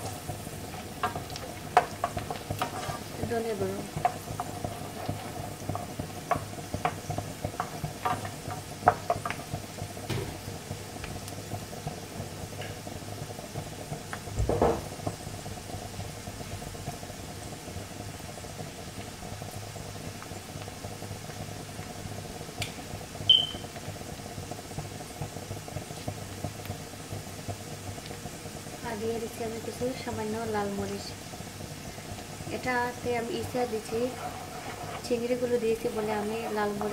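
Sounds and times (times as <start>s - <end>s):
onions sizzling in oil: 0.0s - 36.9s
spatula scraping pan: 1.0s - 9.4s, 32.6s - 36.9s
louder knock: 14.4s - 14.8s.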